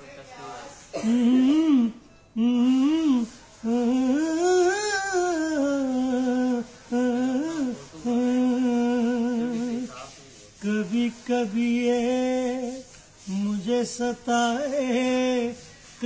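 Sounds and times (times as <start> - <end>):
man humming a melody: 1.0 - 9.8.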